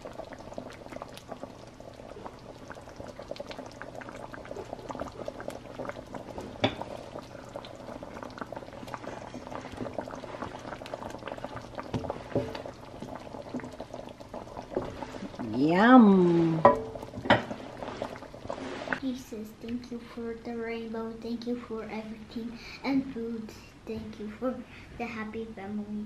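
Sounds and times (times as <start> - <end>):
stew bubbling in a wok: 0.0 - 20.4
spatula stirring: 8.4 - 19.0.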